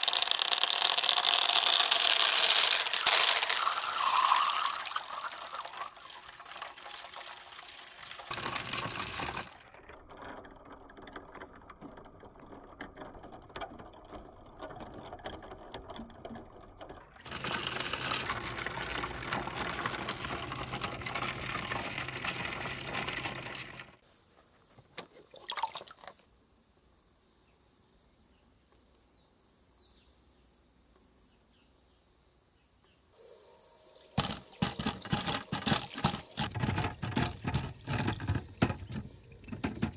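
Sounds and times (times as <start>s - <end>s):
small balls clattering into water: 0.0s - 9.7s, 17.2s - 24.0s, 25.2s - 26.2s, 34.2s - 39.9s.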